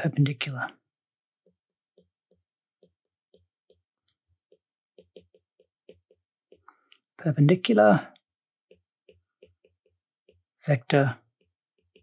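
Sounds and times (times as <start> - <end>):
stylus tapping on glass screen: 1.4 - 7.1, 8.1 - 12.0.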